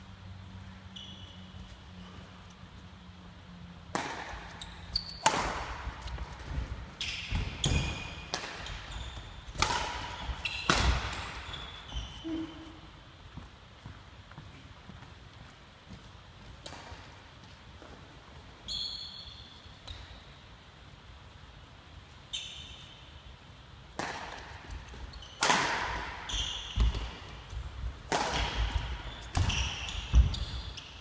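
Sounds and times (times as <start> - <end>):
rackets hitting shuttlecock: 3.8 - 11.9, 23.9 - 31.0.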